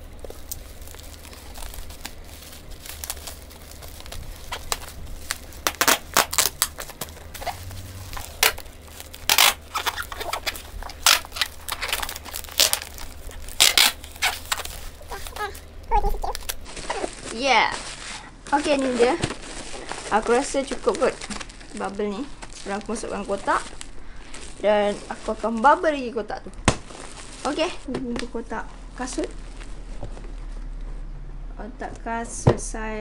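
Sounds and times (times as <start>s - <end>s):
packing tape ripping off roll: 0.0s - 25.8s
bubble wrap crinkling: 0.0s - 30.8s.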